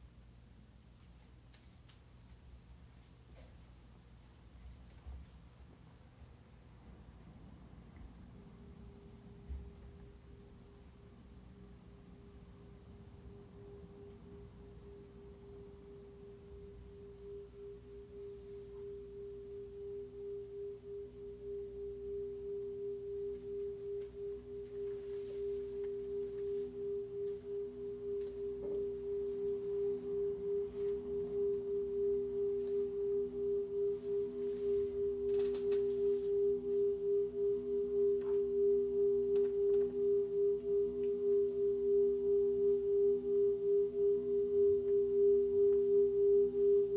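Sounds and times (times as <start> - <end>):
ride cymbal ringing drone: 12.9 - 46.9.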